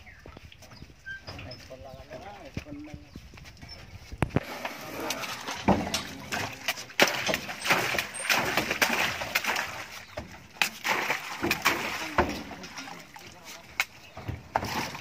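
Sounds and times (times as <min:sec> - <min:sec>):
water splashing in tank: 0:04.4 - 0:15.0
knocks and thuds of handling: 0:05.6 - 0:12.7, 0:14.0 - 0:15.0.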